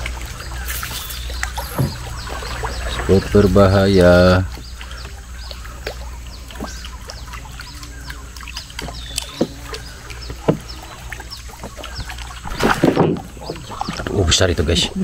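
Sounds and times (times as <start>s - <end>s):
water sloshing around boat: 0.0s - 15.0s
fish splash: 4.6s - 14.2s.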